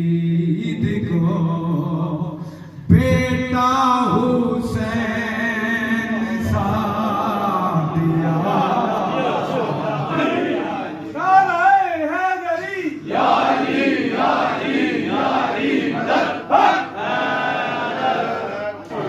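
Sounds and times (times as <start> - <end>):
man singing unaccompanied: 0.0 - 8.7.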